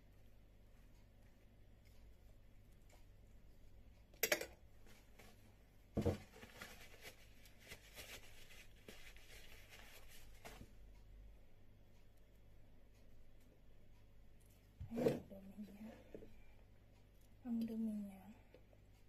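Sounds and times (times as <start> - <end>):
paper napkin rustling: 6.2 - 10.7.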